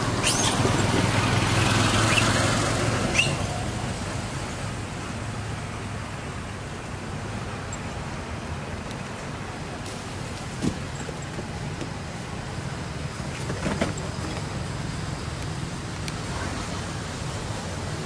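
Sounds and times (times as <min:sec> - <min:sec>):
low engine hum: 0:00.0 - 0:18.0
traffic noise: 0:00.0 - 0:18.0.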